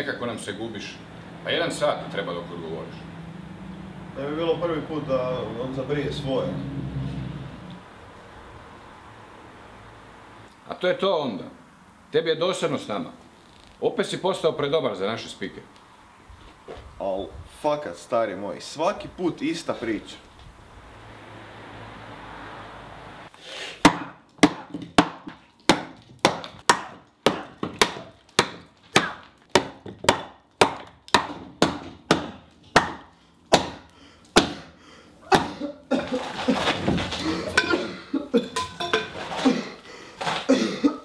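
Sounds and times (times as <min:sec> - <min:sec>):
sharp wooden knocks: 0:23.8 - 0:34.7, 0:35.3 - 0:37.3
wooden pieces clattering: 0:36.0 - 0:37.9.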